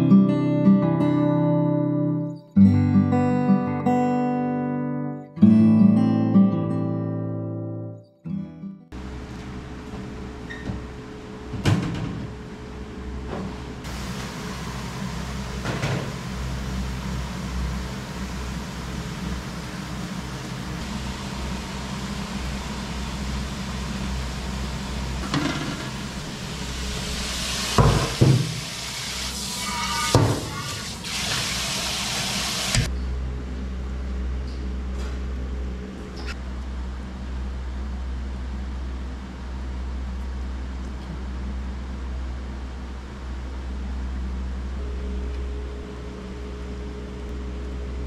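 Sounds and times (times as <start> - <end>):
low machine hum: 9.0 - 27.9, 32.9 - 48.0
tap water running: 13.9 - 32.9
low hum: 32.9 - 48.0.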